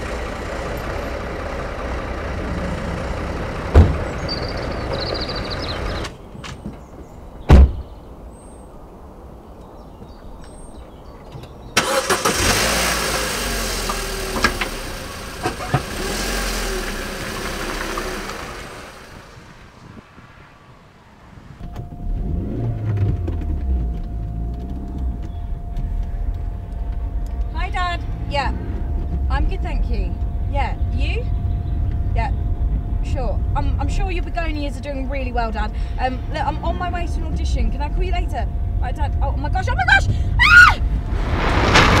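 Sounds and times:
car engine starting and running: 0.0 - 6.4, 11.0 - 42.0
low engine rumble: 0.0 - 42.0
car door shutting: 3.7 - 4.5, 7.5 - 7.8.

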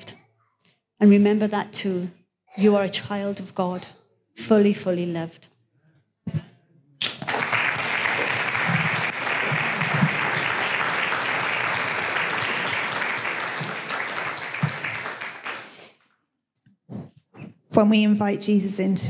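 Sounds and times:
congregation applauding: 7.0 - 16.0.

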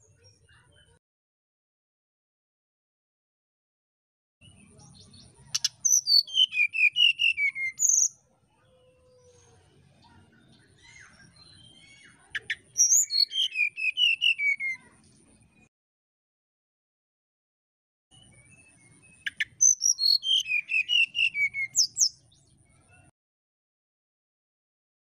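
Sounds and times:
bird singing whistled notes: 4.4 - 8.2, 10.8 - 15.0, 18.1 - 23.0.

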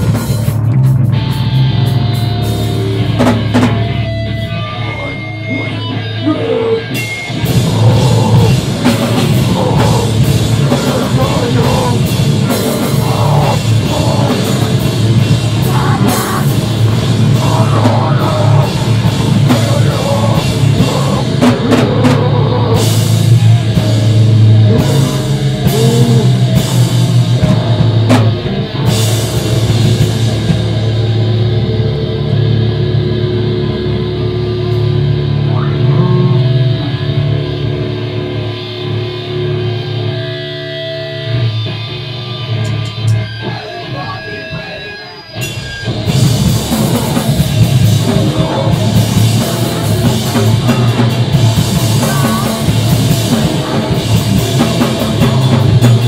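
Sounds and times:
drum kit with crashing cymbals: 0.0 - 4.4, 6.9 - 31.4, 44.6 - 56.0
distorted electric guitars and bass: 0.0 - 56.0.

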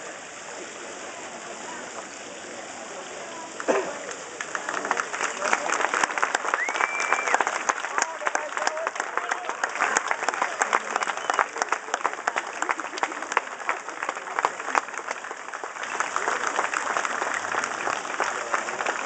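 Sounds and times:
crowd voices: 0.0 - 19.0
audience applauding: 3.3 - 19.0.

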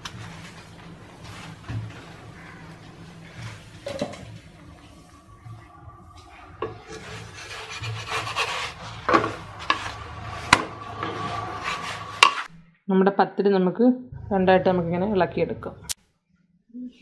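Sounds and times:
wooden spatula scraping a pan: 6.6 - 12.5.

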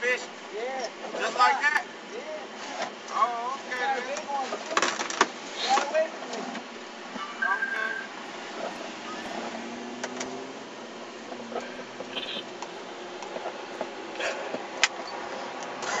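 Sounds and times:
car interior noise: 6.6 - 15.1.

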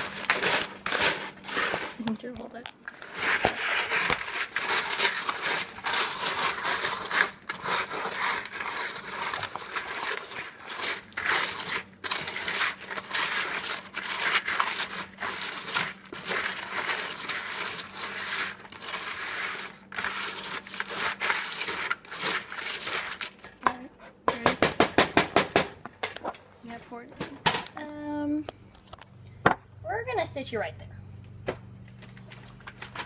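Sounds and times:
plastic bag crinkling: 0.0 - 23.6
cereal crunching and scraping in bowl: 0.0 - 23.7.

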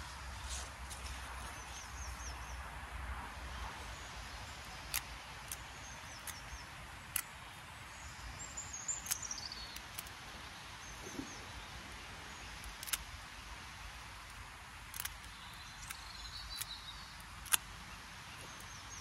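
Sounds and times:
bird chirping: 3.6 - 13.5, 14.9 - 19.0
pruning shears snipping: 4.6 - 7.5, 8.6 - 10.2, 12.5 - 13.2, 14.2 - 19.0.

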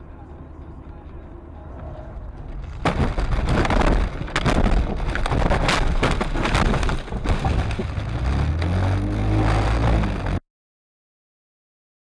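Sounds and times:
car bodywork banging and crunching: 2.4 - 8.8.

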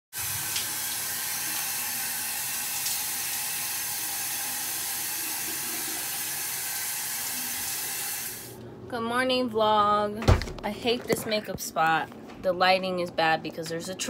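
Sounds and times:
shower running: 0.1 - 8.6.

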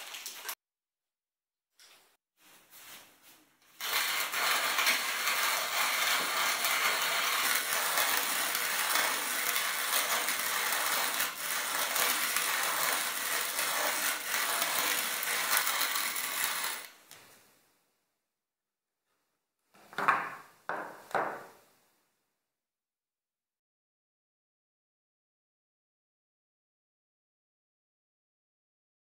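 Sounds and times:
hand-cranked coffee grinder grinding: 3.8 - 17.0.

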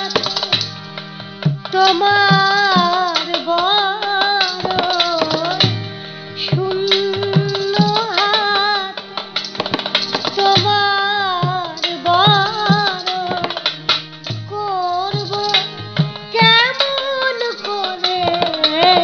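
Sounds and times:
woman singing: 0.0 - 0.7, 1.7 - 9.1, 10.2 - 13.8, 14.5 - 19.0
harmonium: 0.0 - 19.0
small hand percussion: 0.0 - 19.0
barrel drum beating: 9.0 - 14.6.

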